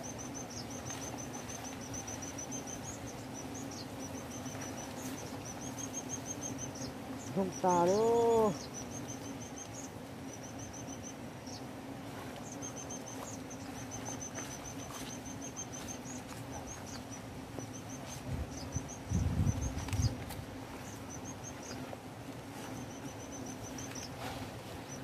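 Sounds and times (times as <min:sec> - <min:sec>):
high chirping trills: 0:00.0 - 0:11.7, 0:12.4 - 0:20.2
wasps buzzing: 0:00.0 - 0:25.0
rustling nest debris: 0:00.1 - 0:11.3.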